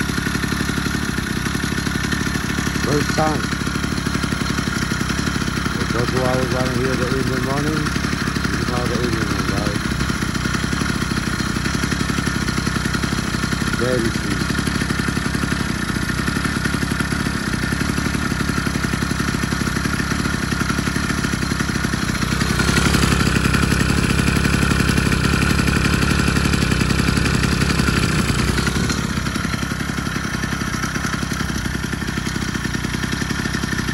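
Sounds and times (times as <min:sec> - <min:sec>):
two-stroke engine running: 0:00.0 - 0:33.9.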